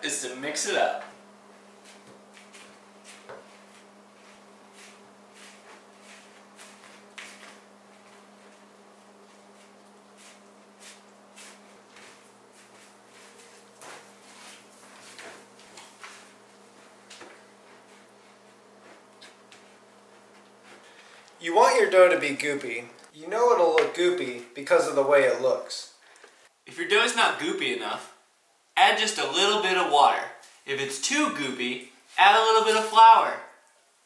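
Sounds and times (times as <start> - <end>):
steady low hum: 0.0 - 25.6.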